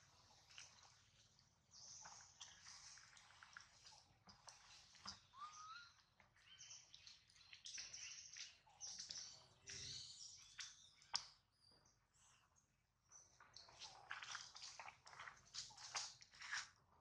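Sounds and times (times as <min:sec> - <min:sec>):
high-pitched animal chirps: 0:05.3 - 0:06.0.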